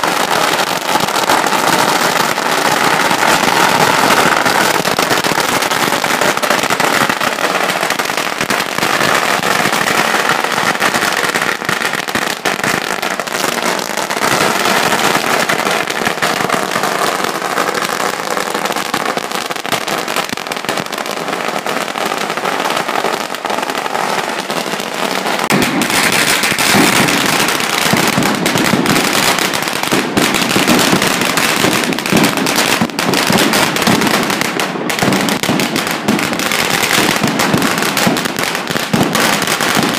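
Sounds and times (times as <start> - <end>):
firecrackers crackling: 0.0 - 39.9.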